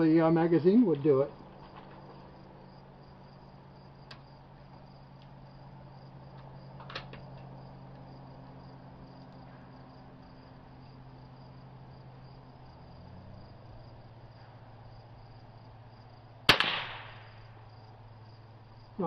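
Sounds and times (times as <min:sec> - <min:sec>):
crickets chirping: 0:00.0 - 0:19.0
low hum: 0:01.3 - 0:19.0
rifle shot: 0:16.5 - 0:17.5.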